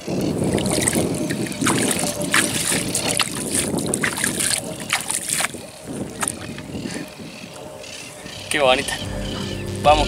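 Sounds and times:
wind rumbling on microphone: 0:00.0 - 0:10.0
water splashing: 0:00.4 - 0:06.5.

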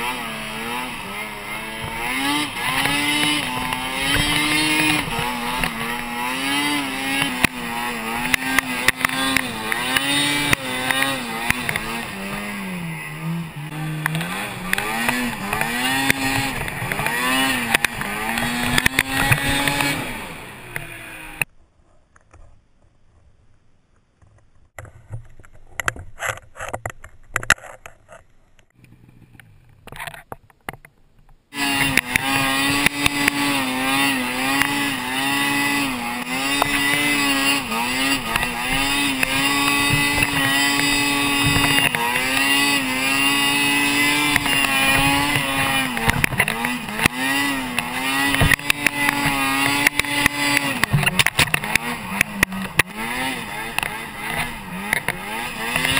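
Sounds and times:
snowmobile engine revving: 0:00.0 - 0:21.5, 0:31.5 - 0:55.9.

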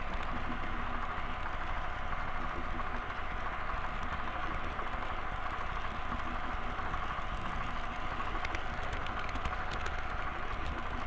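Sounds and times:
model train rumbling and whirring: 0:00.0 - 0:11.0.

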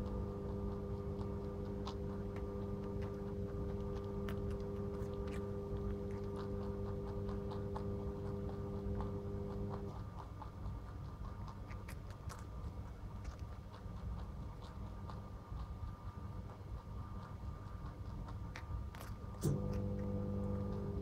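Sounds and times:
low hum: 0:00.0 - 0:11.3, 0:18.9 - 0:21.0
rabbit chewing carrot: 0:00.0 - 0:21.0.

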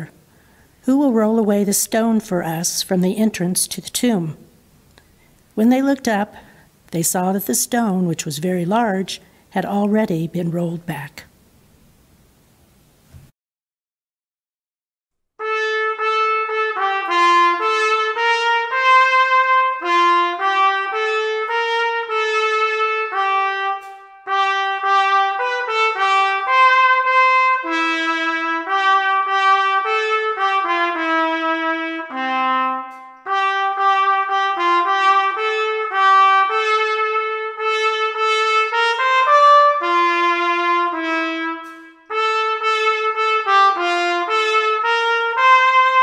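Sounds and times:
brass music led by trumpet: 0:15.4 - 0:46.0.

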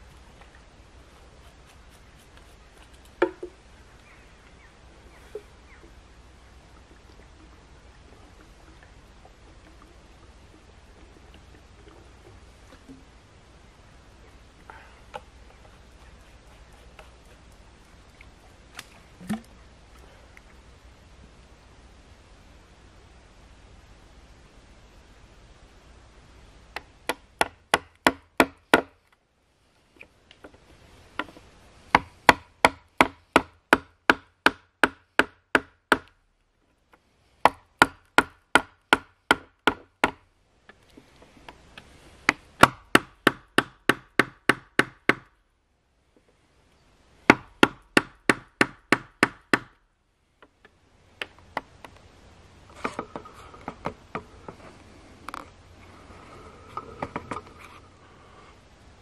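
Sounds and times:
hand tool striking timber: 0:03.2 - 0:03.6, 0:27.1 - 0:29.0, 0:31.2 - 0:36.1, 0:37.5 - 0:40.2, 0:42.3 - 0:45.3.

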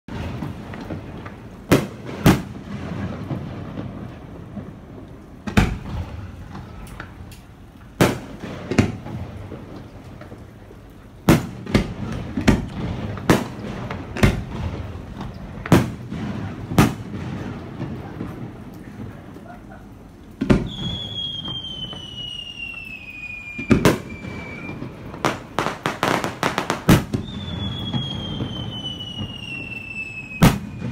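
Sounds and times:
continuous low rumble: 0:00.1 - 0:20.7
fireworks bangs: 0:00.1 - 0:30.9.

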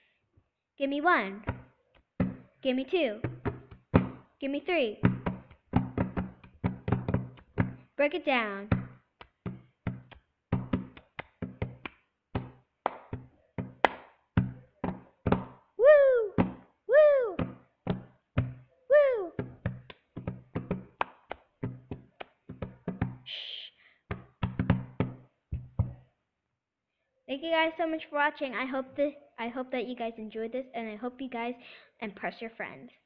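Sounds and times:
palm slaps on a table: 0:08.7 - 0:15.6, 0:19.4 - 0:23.2, 0:24.1 - 0:26.0
hands clapping: 0:08.8 - 0:15.6, 0:19.4 - 0:23.2
person shouting woo: 0:15.8 - 0:17.4, 0:18.9 - 0:19.4
person hissing shh: 0:23.3 - 0:24.0.

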